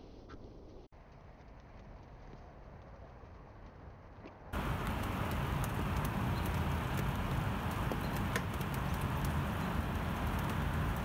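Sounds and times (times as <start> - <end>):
steady rain hiss: 4.6 - 11.0.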